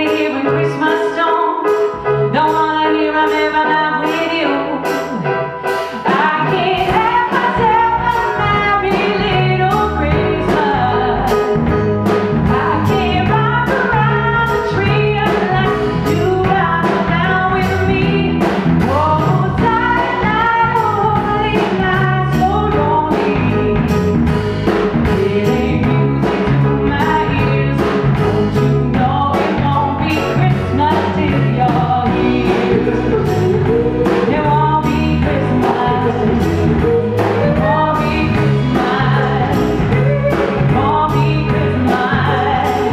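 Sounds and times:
woman singing pop song: 0.0s - 11.8s, 12.4s - 24.1s, 25.0s - 42.9s
drums keeping a steady beat: 0.0s - 42.9s.

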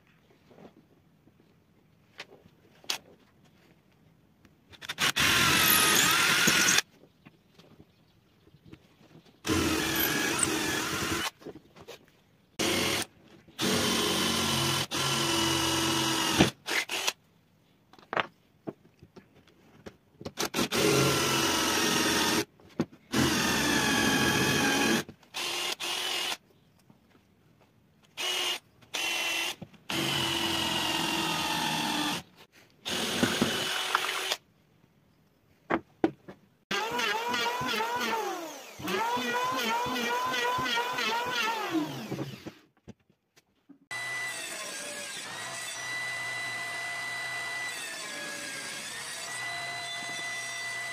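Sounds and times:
cordless drill boring into wood: 4.8s - 6.8s, 9.4s - 11.3s, 12.6s - 17.2s, 20.4s - 22.5s, 23.1s - 26.4s, 28.2s - 34.4s, 36.7s - 42.5s, 43.9s - 50.9s.

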